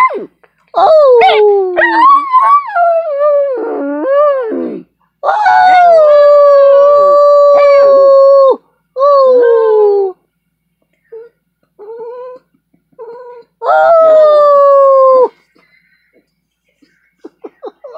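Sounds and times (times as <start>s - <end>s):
dog howling: 0.0s - 10.2s, 13.0s - 15.3s.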